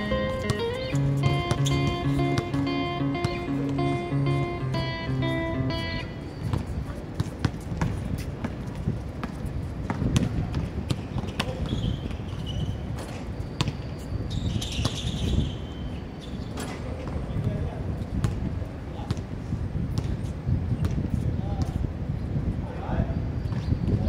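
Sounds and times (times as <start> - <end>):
strummed guitar: 0.0 - 6.2
basketball bouncing on court: 6.5 - 12.5, 13.6 - 13.8, 18.2 - 18.4.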